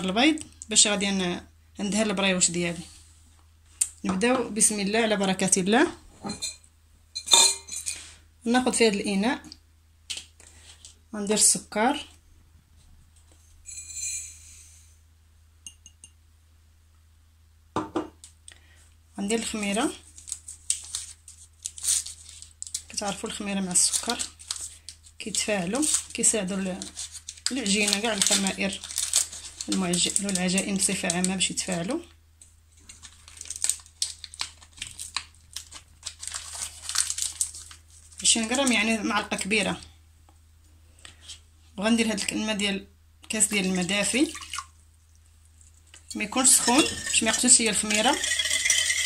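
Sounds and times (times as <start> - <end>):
glass clinking on glass: 6.3 - 8.0
sugar pouring into glass bowl: 13.7 - 14.6, 46.3 - 49.0
wrapper crinkling: 20.0 - 31.9, 32.7 - 39.0.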